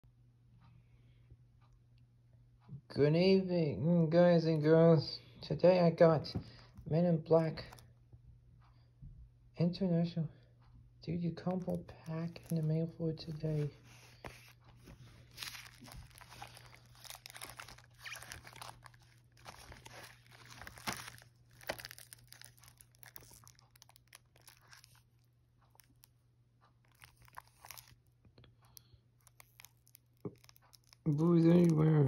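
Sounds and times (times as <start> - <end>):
cardboard and plastic rustling: 11.4 - 26.1, 26.8 - 28.0, 29.2 - 32.0.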